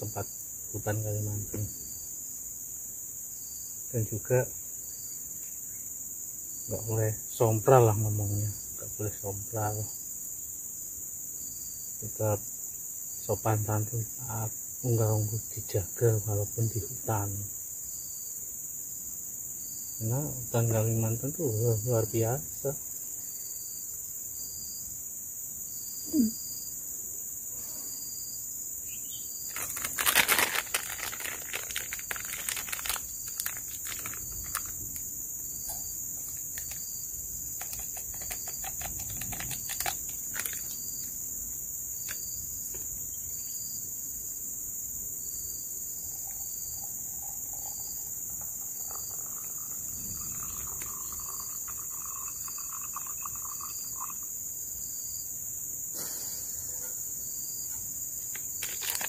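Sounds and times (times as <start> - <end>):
insect drone: 0.0 - 59.0
short insect chirp: 0.0 - 59.0
handling crackling and rustling: 29.5 - 35.0, 36.2 - 36.9, 37.6 - 40.8, 58.3 - 59.0.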